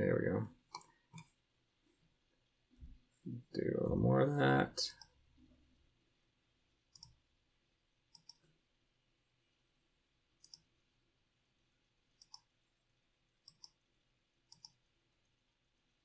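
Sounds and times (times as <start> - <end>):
computer mouse button clicking: 10.4 - 10.6.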